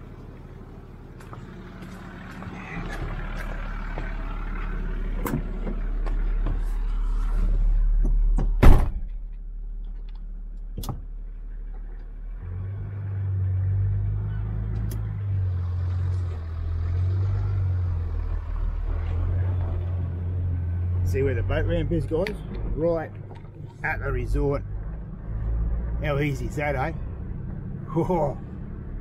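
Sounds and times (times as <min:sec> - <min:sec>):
engine humming: 0:00.0 - 0:29.0
car door slamming: 0:08.4 - 0:09.2.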